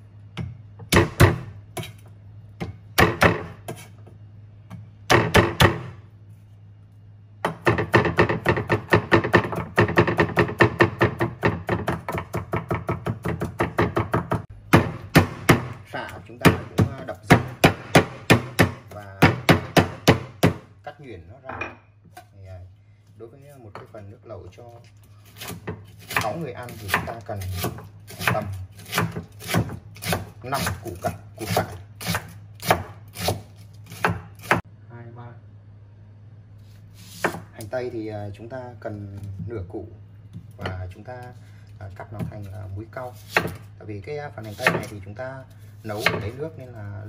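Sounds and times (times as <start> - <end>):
cleaver chopping on wooden block: 7.4 - 15.8, 16.4 - 20.7, 25.4 - 33.4.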